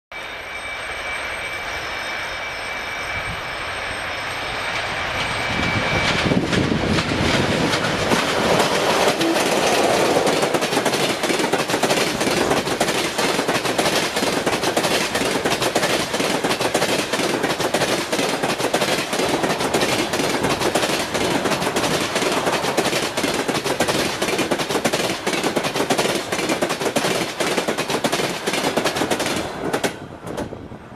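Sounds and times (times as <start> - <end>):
electric train high whine: 0.1 - 30.9
train wheels clacking over rail joints: 5.1 - 30.6.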